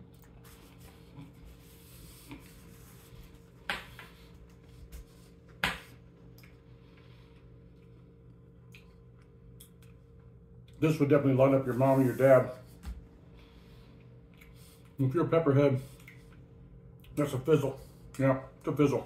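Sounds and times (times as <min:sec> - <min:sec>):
man chewing noodles: 0:00.0 - 0:03.0
faint room hum: 0:00.0 - 0:19.0.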